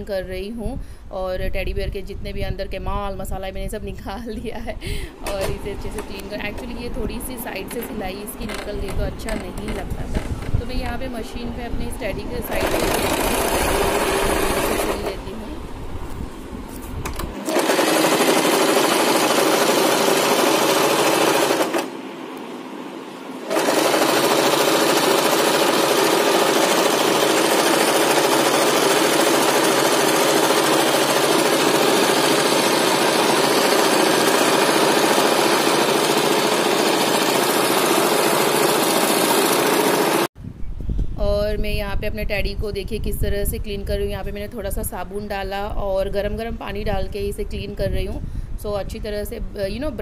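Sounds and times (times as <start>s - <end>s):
sewing machine running: 5.1s - 6.9s, 12.3s - 15.5s, 17.2s - 22.0s, 23.4s - 40.3s.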